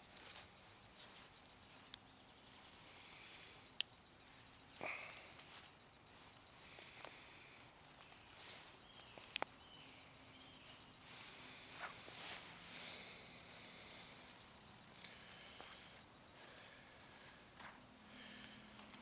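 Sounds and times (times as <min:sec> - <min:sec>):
twig rustling and crackling: 0:00.0 - 0:02.8, 0:04.7 - 0:10.0.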